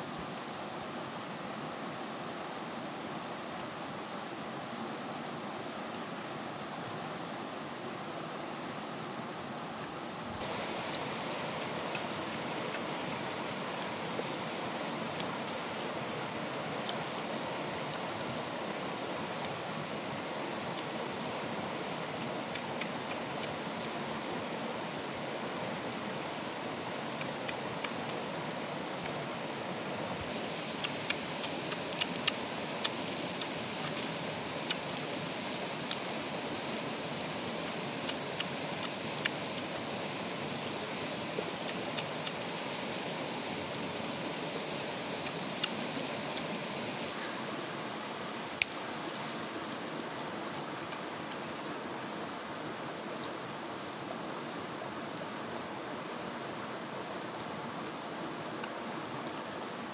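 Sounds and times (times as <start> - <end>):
stream flowing over stones: 0.0 - 59.9
faint clicks: 30.3 - 40.8, 48.6 - 49.8.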